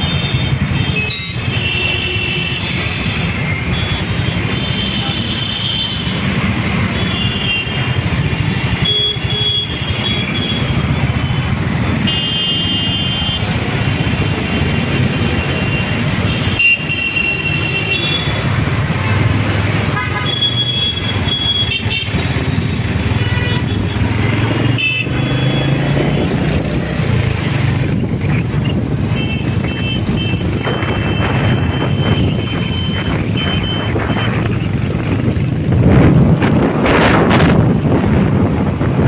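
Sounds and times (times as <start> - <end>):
vehicle horns honking: 0.0 - 13.7, 15.3 - 26.4, 29.1 - 34.7
traffic engine rumble: 0.0 - 39.0.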